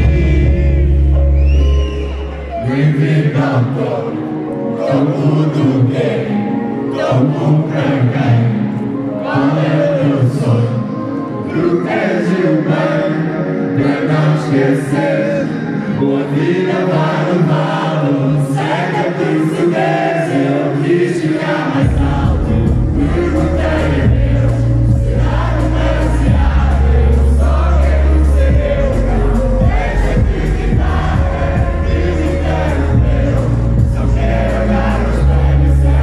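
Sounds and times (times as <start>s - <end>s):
man singing into microphone: 0.0s - 1.8s, 2.6s - 36.0s
deep bass line: 0.0s - 2.0s, 21.8s - 36.0s
crowd singing along: 0.0s - 36.0s
band backing track: 21.8s - 36.0s.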